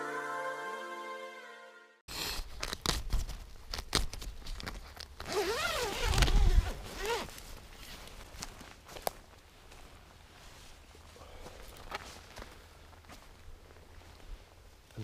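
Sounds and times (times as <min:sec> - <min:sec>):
intro music: 0:00.0 - 0:02.0
fabric and gear rustling: 0:02.5 - 0:14.9.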